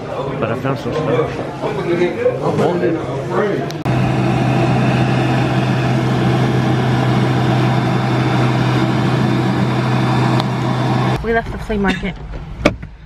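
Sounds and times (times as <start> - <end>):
hand dryer running: 3.9 - 11.2.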